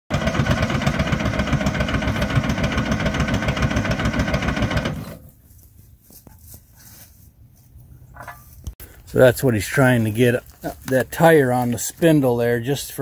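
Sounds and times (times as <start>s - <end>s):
backhoe engine running: 0.1s - 5.3s.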